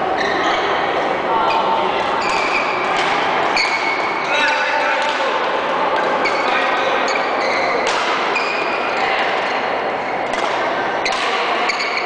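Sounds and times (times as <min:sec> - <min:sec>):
reverberant hall din: 0:00.0 - 0:12.0
rackets hitting shuttlecocks: 0:02.2 - 0:06.2, 0:07.7 - 0:08.6, 0:10.2 - 0:12.0.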